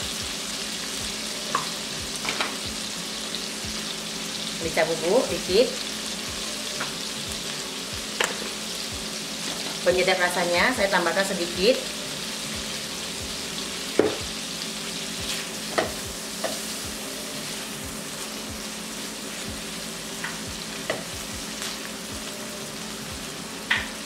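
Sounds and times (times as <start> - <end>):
shrimp sizzling in butter: 0.0 - 24.0
spatula knocking against pan: 14.0 - 14.2.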